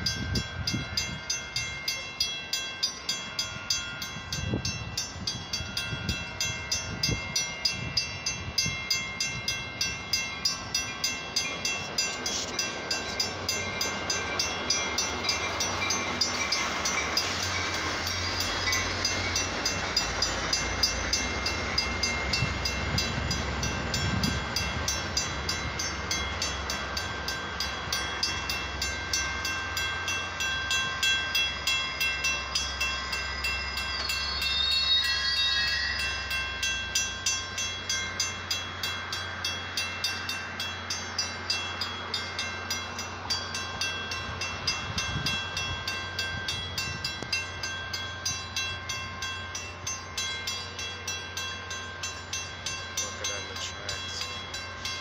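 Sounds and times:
railroad crossing bell ringing: 0:00.0 - 0:55.0
train rumbling past: 0:00.0 - 0:55.0
high squeal: 0:33.2 - 0:36.4.

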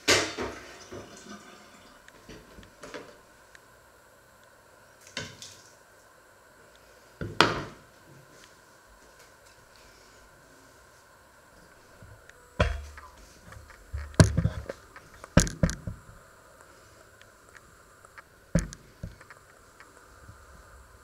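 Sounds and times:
sharp knocks and clatters: 0:13.9 - 0:16.0.

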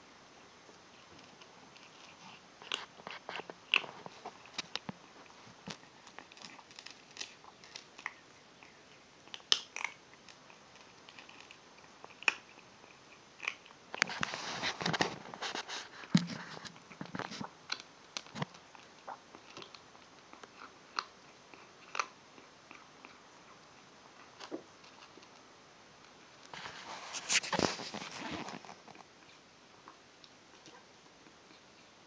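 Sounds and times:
kitten crunching dry kibble: 0:00.7 - 0:30.4.

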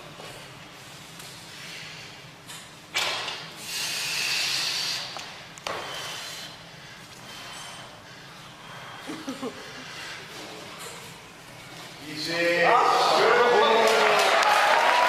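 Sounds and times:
long hissing exhale: 0:03.6 - 0:09.1
forceful breathing: 0:03.6 - 0:11.7.

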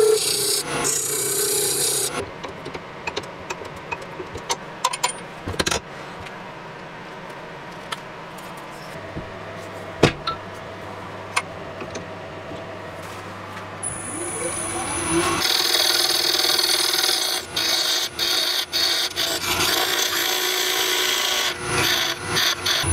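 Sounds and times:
lathe tool scraping spinning wood: 0:00.0 - 0:02.2, 0:14.0 - 0:22.9.

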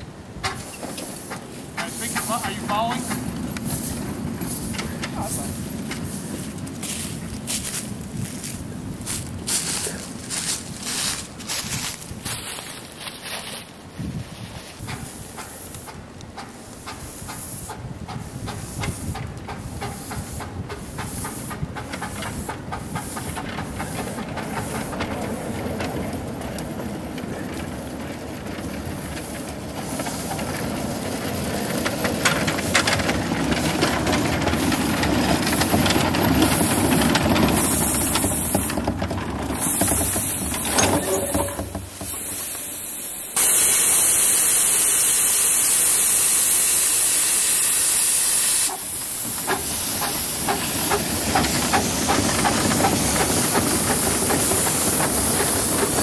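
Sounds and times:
train cars rolling on rails: 0:00.0 - 0:56.0
steady hiss of steam: 0:00.5 - 0:07.9, 0:14.8 - 0:25.3, 0:33.6 - 0:38.9, 0:39.6 - 0:56.0
loud blast of escaping steam: 0:34.5 - 0:38.9, 0:39.6 - 0:56.0.

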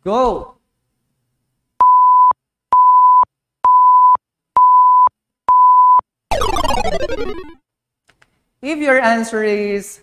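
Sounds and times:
countdown timer beeping: 0:06.3 - 0:07.6.

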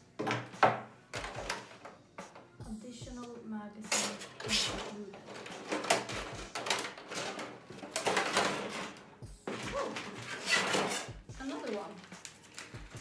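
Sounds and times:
plastic and cardboard scraping: 0:03.9 - 0:13.0.

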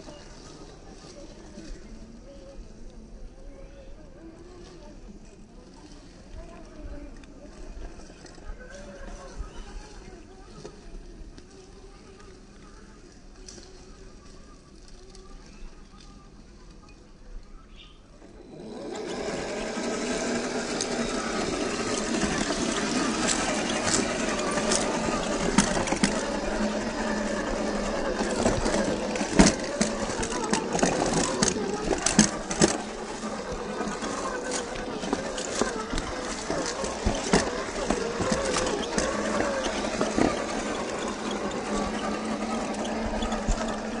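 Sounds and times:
electric motor whirring: 0:18.2 - 0:44.0
tyres crunching over leaves and gravel: 0:18.2 - 0:44.0.

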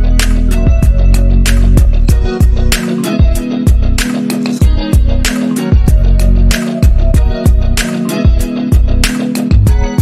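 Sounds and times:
sharp claps: 0:01.4 - 0:01.8, 0:04.0 - 0:04.6.

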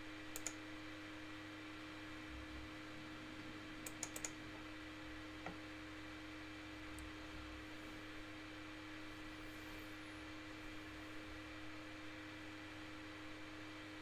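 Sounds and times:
steady electrical hum: 0:00.0 - 0:14.0
sharp computer clicks: 0:00.3 - 0:00.6, 0:03.8 - 0:04.4.

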